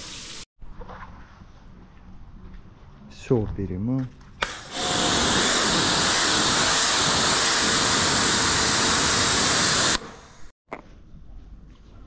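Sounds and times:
pressure washer spraying: 4.4s - 10.1s.

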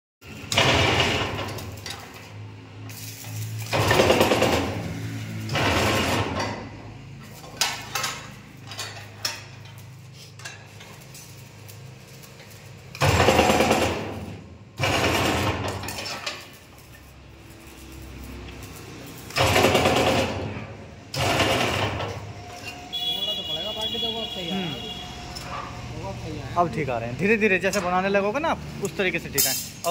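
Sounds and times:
loud noisy bending bursts: 2.8s - 6.6s, 12.9s - 15.9s, 17.3s - 25.5s.

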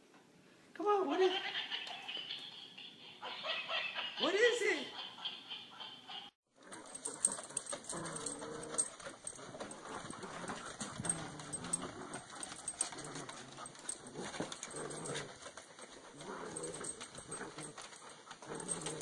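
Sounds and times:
dogs scuffling: 6.5s - 19.0s
dog whining: 6.6s - 19.0s.

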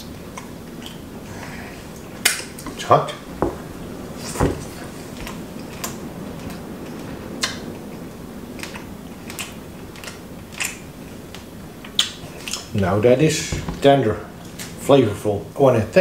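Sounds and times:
low room hum: 0.0s - 16.0s
person chewing: 0.3s - 2.2s, 8.6s - 12.7s
mouth clicks and lip smacks: 11.9s - 12.7s.

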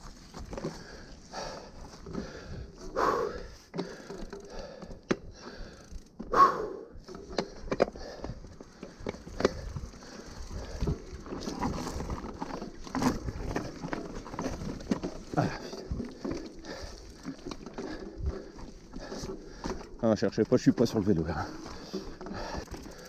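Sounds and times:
bike tyres crunching on dirt: 0.0s - 23.0s
bike knocks and clicks: 3.7s - 6.1s, 7.0s - 9.9s
bike scrapes: 9.2s - 17.2s.

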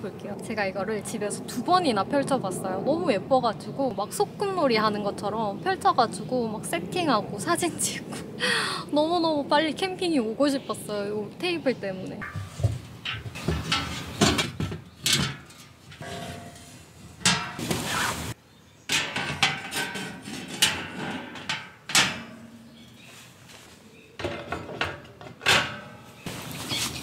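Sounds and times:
metal scraping rattle: 12.2s - 18.3s, 18.9s - 23.1s
metal clanks and clicks: 13.0s - 17.6s, 18.9s - 22.7s, 24.2s - 26.0s.

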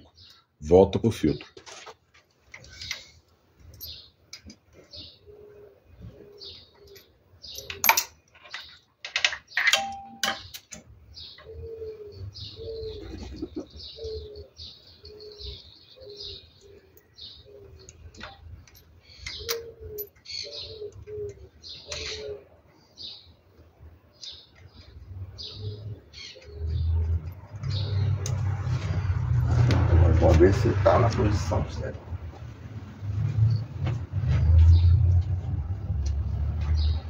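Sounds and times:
small birds chirping: 0.0s - 1.6s, 2.6s - 29.6s
dove cooing: 4.9s - 7.8s, 11.2s - 18.4s, 19.3s - 23.1s, 25.4s - 28.2s
sharp knocks or clinks: 9.5s - 10.6s.

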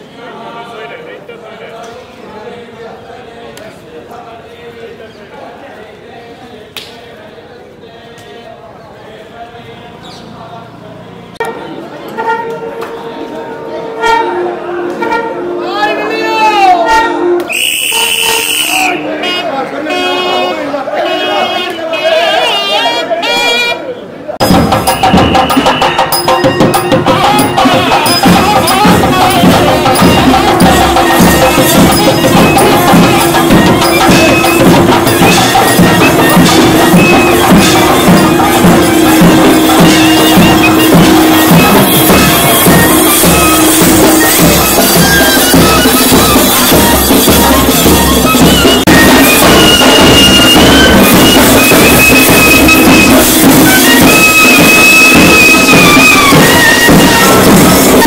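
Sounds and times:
drum strokes: 24.4s - 58.0s
wavering wind instrument melody: 24.5s - 58.0s
reed pipe sliding notes: 24.9s - 58.0s.

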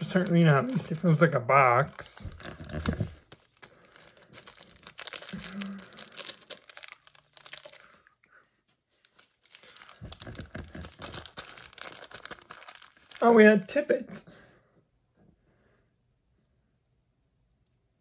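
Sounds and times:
plastic packaging crackling and tearing: 0.0s - 8.1s, 9.0s - 13.8s.

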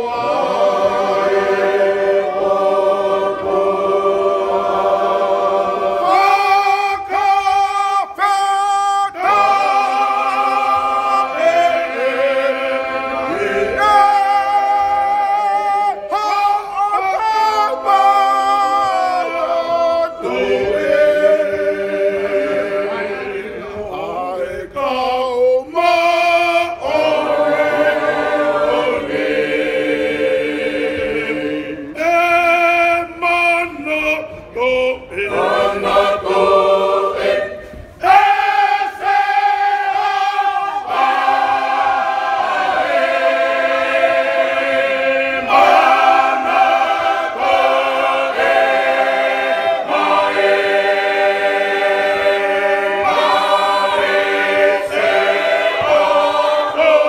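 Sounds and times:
choir singing a hymn a cappella: 0.0s - 57.0s.

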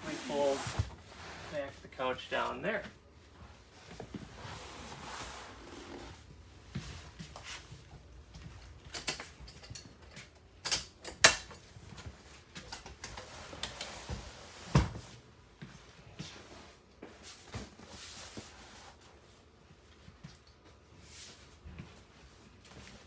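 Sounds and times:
cushions and upholstery rustling: 0.0s - 8.9s.

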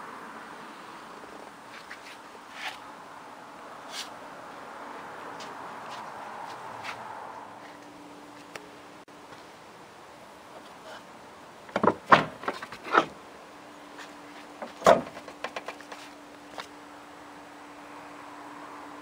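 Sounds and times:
trunk lid clunk: 11.7s - 13.1s, 14.6s - 15.7s
car trunk latch clicks and clunks: 14.6s - 15.2s.

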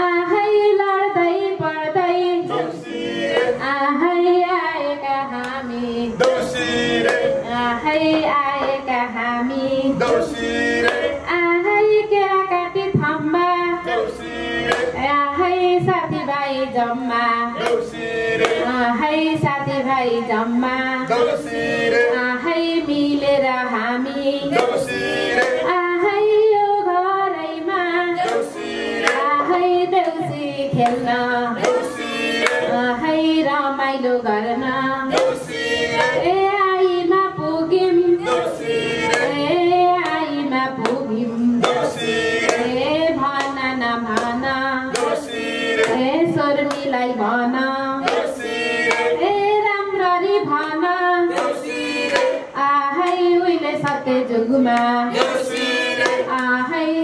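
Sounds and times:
woman singing into microphone: 0.0s - 2.8s, 3.4s - 6.3s, 7.3s - 10.3s, 11.0s - 14.2s, 14.9s - 17.9s, 18.6s - 24.9s, 25.5s - 55.5s, 56.1s - 57.0s
people clapping along: 2.4s - 3.8s, 5.3s - 9.1s, 9.9s - 11.3s, 13.8s - 15.1s, 16.8s - 26.9s, 27.6s - 33.5s, 34.6s - 36.6s, 38.1s - 57.0s.

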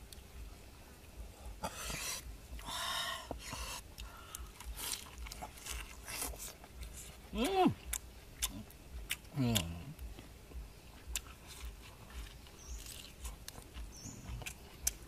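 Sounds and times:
breathy hisses of breath: 1.4s - 4.6s.

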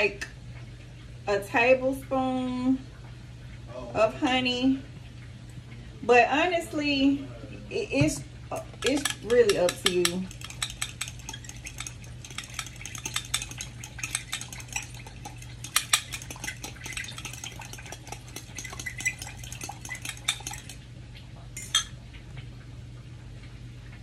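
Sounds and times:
spoon clinking against glass: 8.7s - 20.8s, 21.6s - 22.0s.

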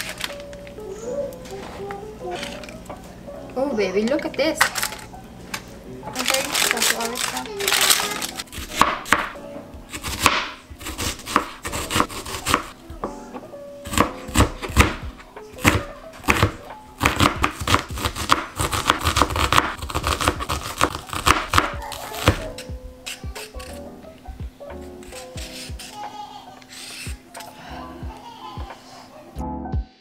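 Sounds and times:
background music: 0.0s - 30.0s
knife chopping on cutting board: 8.5s - 12.7s, 13.9s - 15.0s, 15.6s - 22.7s.

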